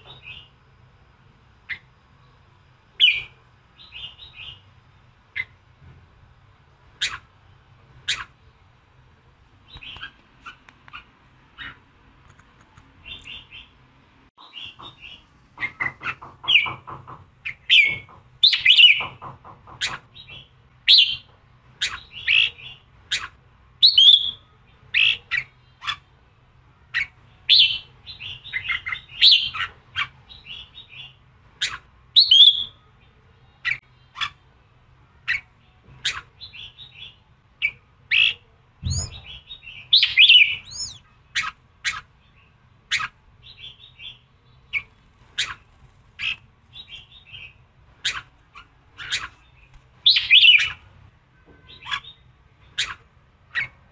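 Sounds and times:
bulbul singing and chattering: 14.5s - 26.0s, 26.9s - 32.8s, 35.3s - 50.8s.

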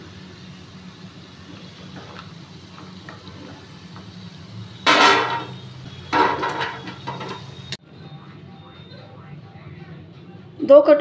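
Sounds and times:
food sizzling in hot oil: 0.0s - 7.8s
metallic clatters on a plate: 4.9s - 5.6s, 6.2s - 7.5s
metal spoon scraping a pan: 4.9s - 7.6s.

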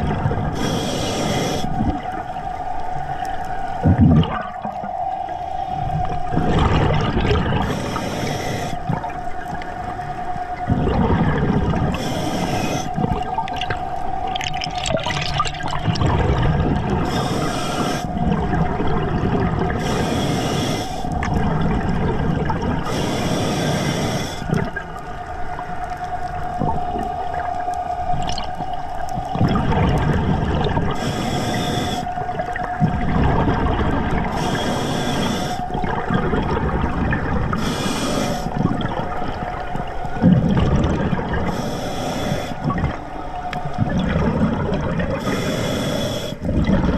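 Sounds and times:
gurgling exhaled bubbles: 0.0s - 46.9s
regulator inhalation hiss: 0.6s - 2.0s, 7.6s - 8.9s, 11.9s - 13.0s, 17.0s - 18.2s, 19.8s - 21.2s, 22.8s - 24.6s, 30.9s - 32.3s, 34.2s - 35.8s, 37.5s - 38.6s, 41.5s - 42.7s, 45.2s - 46.4s.

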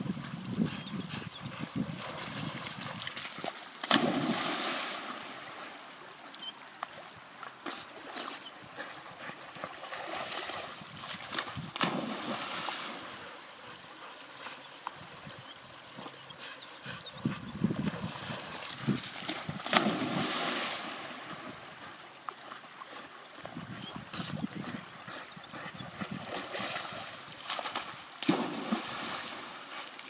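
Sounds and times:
flowing stream: 1.5s - 30.0s
dog splashing while swimming: 2.0s - 5.5s, 9.3s - 13.2s, 17.9s - 21.6s, 26.1s - 29.8s.

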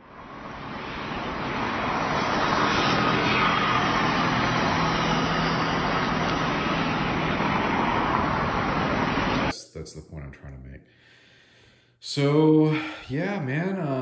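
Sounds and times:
low engine hum: 0.0s - 9.5s.

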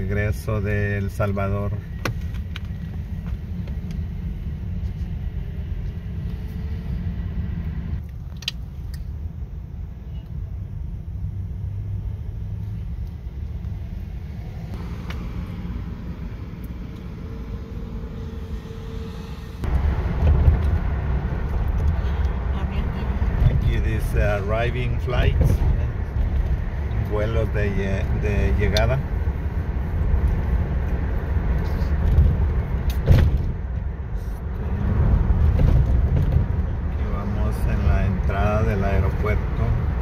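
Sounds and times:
car cabin rumble: 9.9s - 40.0s.

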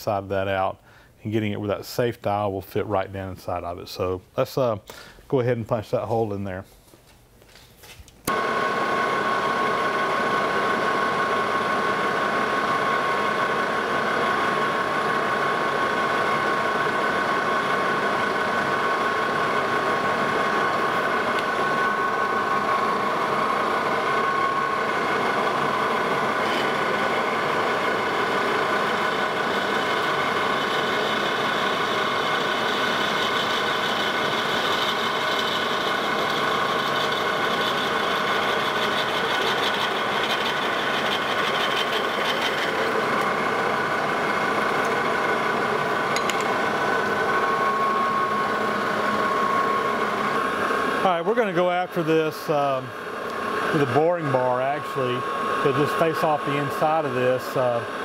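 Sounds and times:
metal lathe whining: 8.3s - 58.0s
drill cutting metal hiss: 21.6s - 45.1s.

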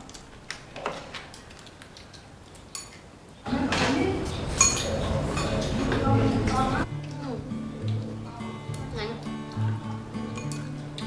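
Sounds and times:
utensils clinking on bowls: 3.8s - 6.8s, 10.2s - 11.0s.

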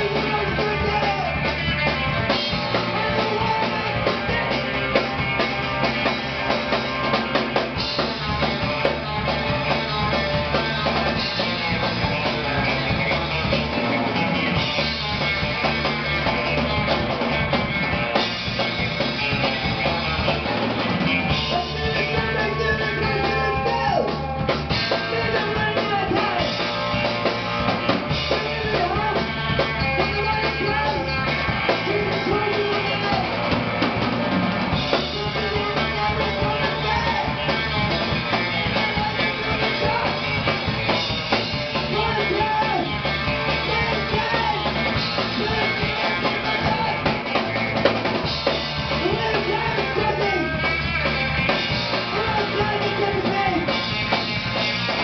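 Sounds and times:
man singing: 0.0s - 5.5s, 21.2s - 26.7s, 28.2s - 33.5s, 34.9s - 47.8s, 48.9s - 54.0s
drum kit: 0.0s - 55.0s
electric guitars: 0.0s - 55.0s.

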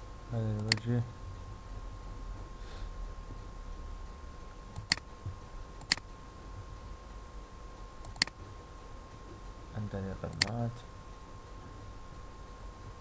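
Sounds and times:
faint steady hum: 0.0s - 13.0s
computer mouse clicking: 0.5s - 0.9s, 4.7s - 5.1s, 5.8s - 6.1s, 8.0s - 8.4s, 10.2s - 10.7s.

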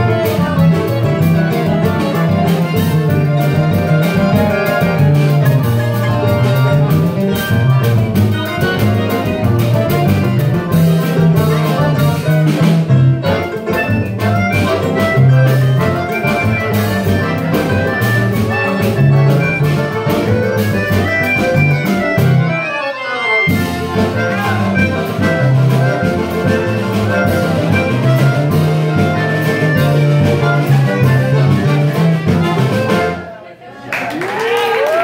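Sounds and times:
melodica playing melody: 0.0s - 33.4s
acoustic guitar: 23.4s - 33.4s.

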